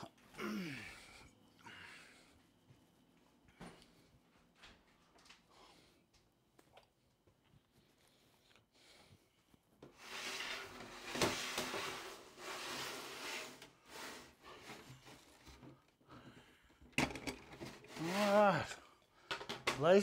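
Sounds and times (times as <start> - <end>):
plastic tub rustling and scraping: 9.9 - 15.8, 17.1 - 18.8.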